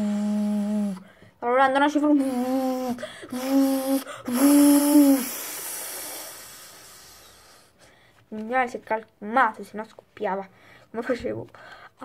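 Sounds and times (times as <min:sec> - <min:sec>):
child making vocal noises: 0:00.0 - 0:06.4
hiss: 0:03.4 - 0:07.8.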